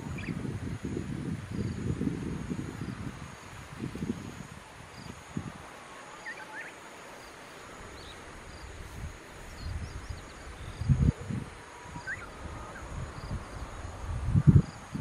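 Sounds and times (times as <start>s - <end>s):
wind buffeting microphone: 0.0s - 5.8s, 7.9s - 15.0s
bird chirps: 6.2s - 6.8s, 11.8s - 12.9s.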